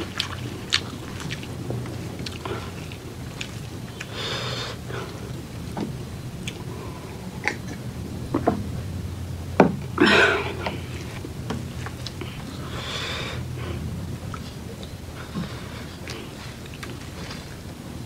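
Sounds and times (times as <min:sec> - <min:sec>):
person chewing: 0:00.0 - 0:05.5, 0:10.0 - 0:17.8
breathy burst: 0:02.3 - 0:08.2, 0:09.9 - 0:11.4, 0:12.0 - 0:18.0.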